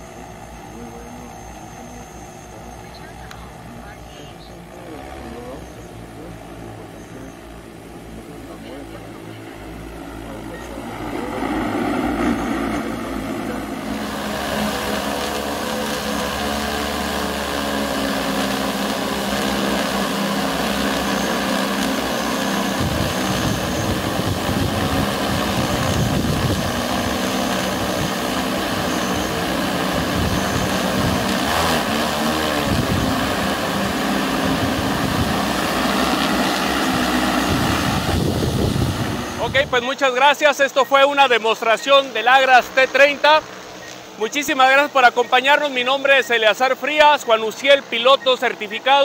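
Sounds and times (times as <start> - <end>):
drone rotors whirring: 0.0 - 49.0
low gusty rumble: 22.7 - 31.5, 32.4 - 39.8.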